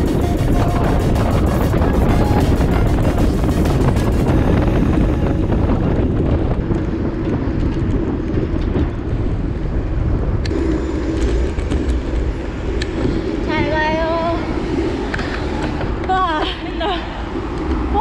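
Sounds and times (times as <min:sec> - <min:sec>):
wavering high-pitched tone: 0:00.0 - 0:05.6
road and car traffic rumble: 0:00.0 - 0:18.0
wind rushing over microphone: 0:00.0 - 0:18.0.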